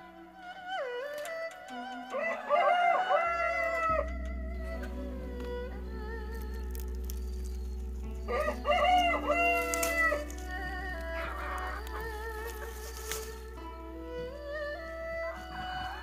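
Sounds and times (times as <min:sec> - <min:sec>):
soft background music: 0:00.0 - 0:16.0
rooster crowing: 0:02.1 - 0:04.2, 0:08.2 - 0:13.5.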